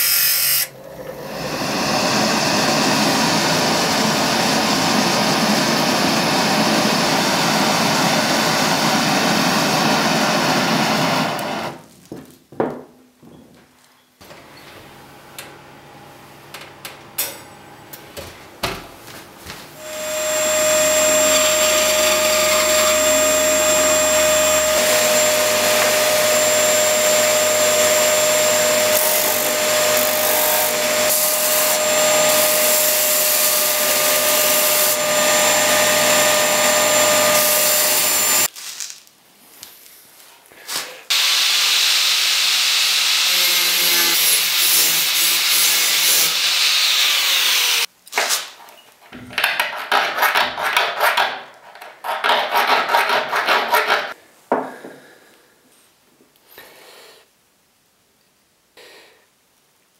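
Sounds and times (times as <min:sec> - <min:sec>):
bandsaw cutting wood: 0:19.8 - 0:38.5, 0:41.1 - 0:47.9
belt sander running: 0:19.8 - 0:38.5
hand tool scraping: 0:49.4 - 0:54.2.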